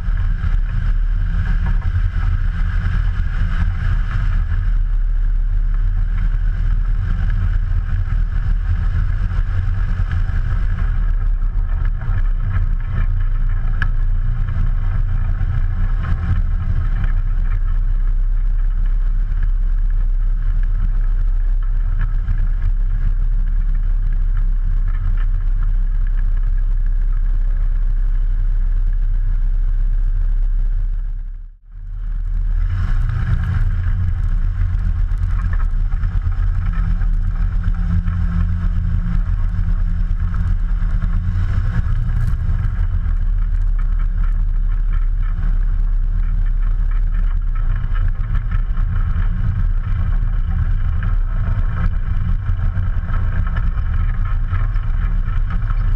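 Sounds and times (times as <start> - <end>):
aircraft engine and propeller: 31.8 - 55.9.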